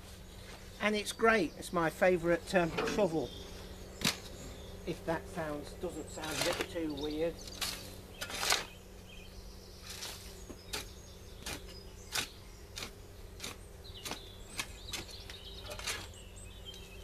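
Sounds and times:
faint birdsong: 0:00.0 - 0:17.0
shovel scraping into manure: 0:05.3 - 0:08.8, 0:09.8 - 0:16.2.

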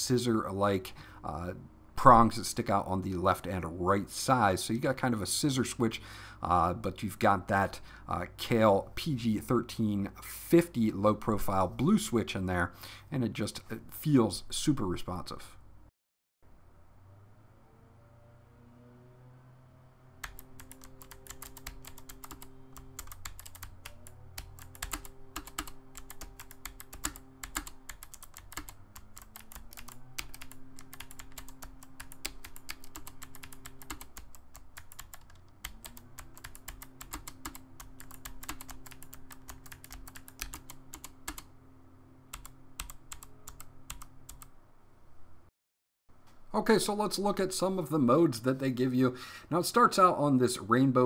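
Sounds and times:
mechanical keyboard clicks: 0:20.2 - 0:41.5, 0:42.3 - 0:44.5.

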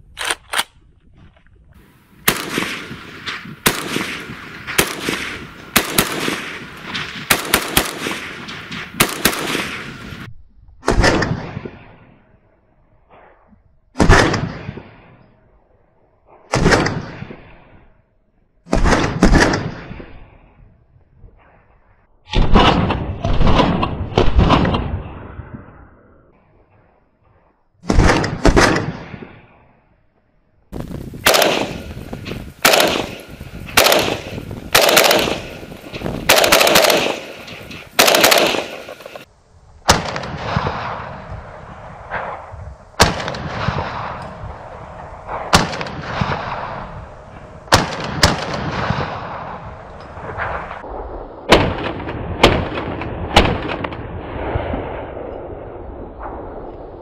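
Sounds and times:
rifle gunshots: 0:02.2 - 0:11.9, 0:14.0 - 0:14.9, 0:16.5 - 0:17.5, 0:18.7 - 0:20.2, 0:22.3 - 0:24.9, 0:27.8 - 0:29.3, 0:31.2 - 0:39.3, 0:39.9 - 0:41.3, 0:42.1 - 0:50.8, 0:51.4 - 0:55.3.

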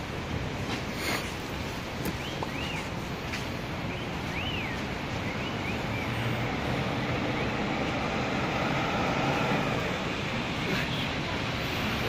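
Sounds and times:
city street traffic rumble: 0:00.0 - 0:12.0
high whistling glides: 0:04.0 - 0:10.1.

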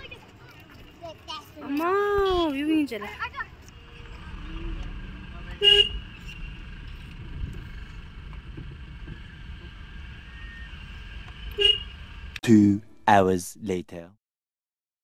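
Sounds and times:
road noise: 0:00.0 - 0:13.6
car engine rumble: 0:03.2 - 0:12.4
car horn toot: 0:05.6 - 0:06.0, 0:11.5 - 0:11.9.

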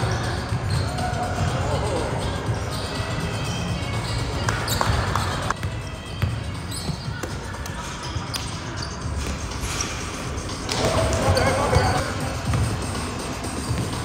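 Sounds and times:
shoe squeaks: 0:00.0 - 0:01.5, 0:02.2 - 0:12.9
basketball dribbling on gym floor: 0:10.7 - 0:12.9.

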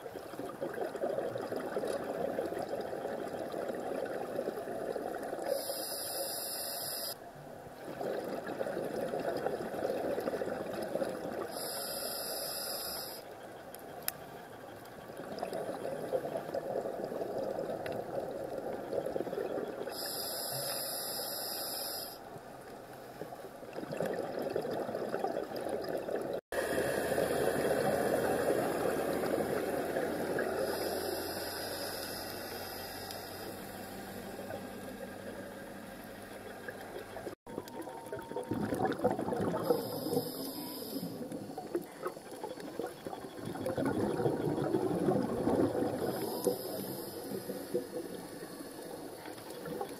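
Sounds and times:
underwater bubbles rushing: 0:00.0 - 0:05.5, 0:07.8 - 0:11.5, 0:15.0 - 0:19.9, 0:23.6 - 0:30.9, 0:36.4 - 0:49.9
high hiss: 0:05.5 - 0:07.2, 0:11.5 - 0:13.2, 0:19.9 - 0:22.2, 0:30.6 - 0:34.2, 0:39.6 - 0:41.3, 0:46.1 - 0:48.9.

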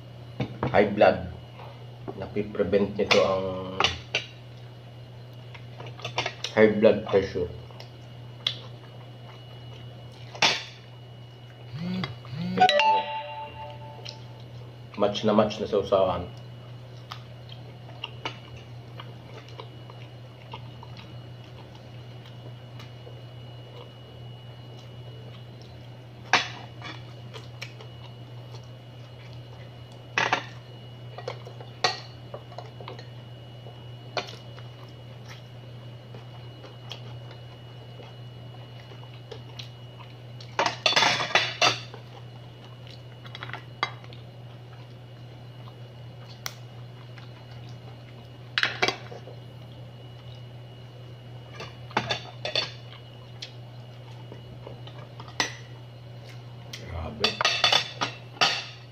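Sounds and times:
low hum: 0:11.7 - 0:14.5.

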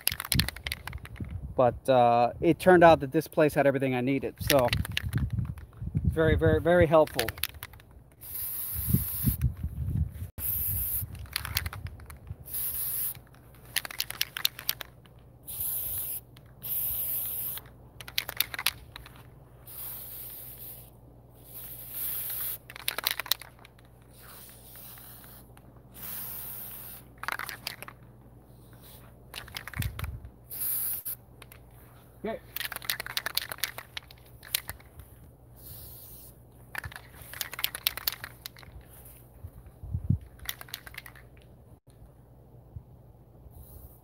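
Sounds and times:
aerosol spray hissing bursts: 0:08.2 - 0:09.4, 0:10.4 - 0:11.1, 0:12.5 - 0:13.2, 0:15.5 - 0:17.6, 0:19.6 - 0:22.6, 0:24.1 - 0:27.1, 0:30.5 - 0:31.2, 0:35.6 - 0:36.4.

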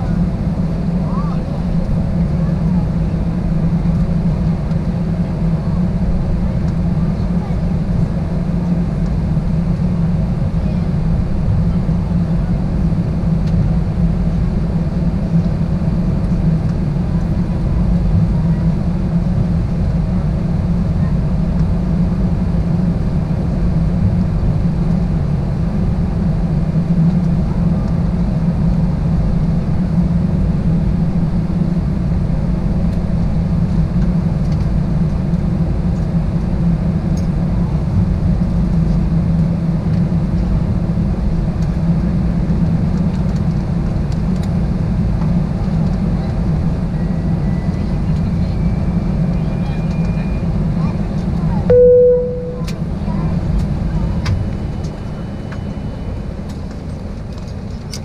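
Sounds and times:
jet engines idling in cabin: 0:00.0 - 0:58.0.

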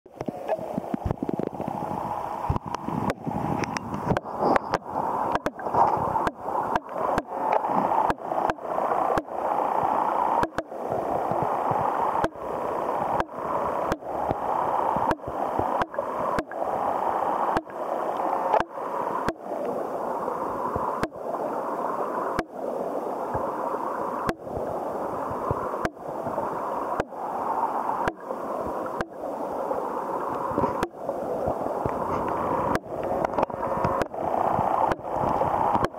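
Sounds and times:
sharp underwater clicks: 0:00.1 - 0:09.4, 0:10.3 - 0:12.5, 0:13.1 - 0:16.7, 0:17.5 - 0:19.8, 0:20.7 - 0:21.2, 0:22.3 - 0:22.6, 0:24.2 - 0:24.5, 0:25.3 - 0:27.2, 0:28.0 - 0:29.2, 0:30.3 - 0:35.9
muffled underwater water rush: 0:00.1 - 0:35.9.

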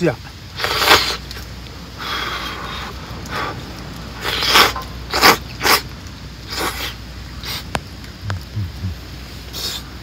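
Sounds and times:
person slurping noodles: 0:00.6 - 0:01.2, 0:04.2 - 0:05.8, 0:06.5 - 0:07.6.

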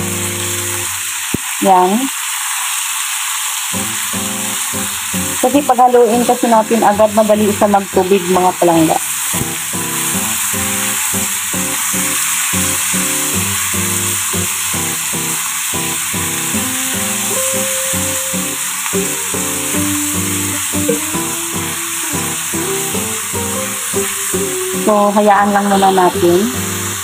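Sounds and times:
meat sizzling in hot oil: 0:00.0 - 0:27.0
background music: 0:16.5 - 0:27.0.

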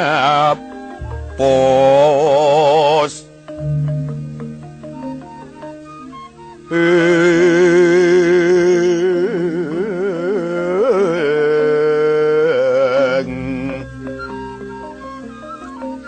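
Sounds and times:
ornamented melody line: 0:00.8 - 0:02.8, 0:03.5 - 0:07.4, 0:12.9 - 0:16.0
gamelan ensemble: 0:01.0 - 0:02.6, 0:03.6 - 0:06.3, 0:13.2 - 0:16.0.

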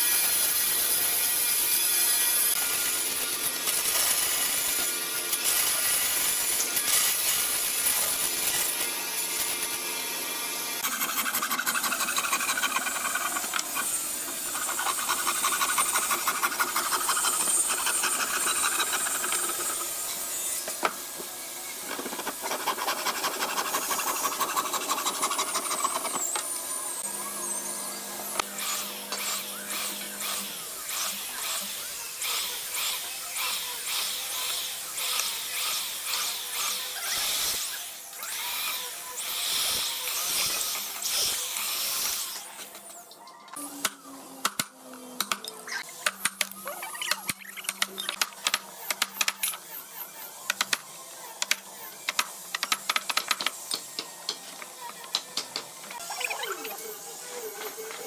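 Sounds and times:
hand saw rasping through wood: 0:10.8 - 0:20.0, 0:21.9 - 0:26.4.

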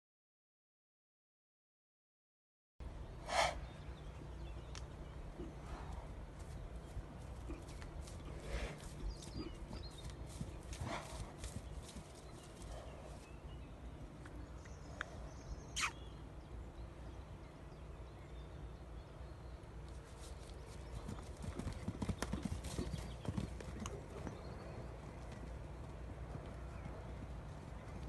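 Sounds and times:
hoofbeats on sand: 0:05.5 - 0:13.6, 0:20.0 - 0:28.0.

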